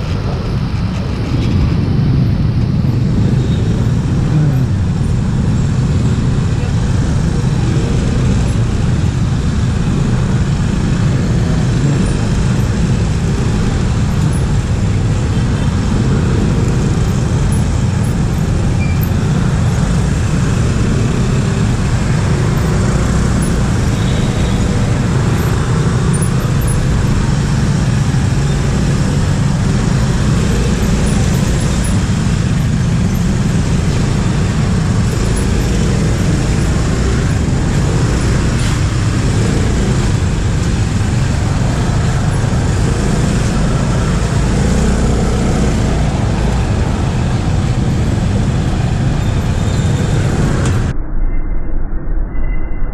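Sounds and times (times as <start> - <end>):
traffic engines rumbling: 0.0 - 51.0.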